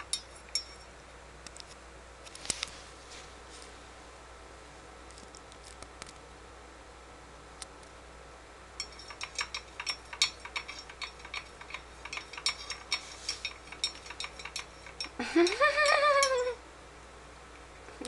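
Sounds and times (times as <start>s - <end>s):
kitten claws tapping on glass: 8.8s - 16.6s.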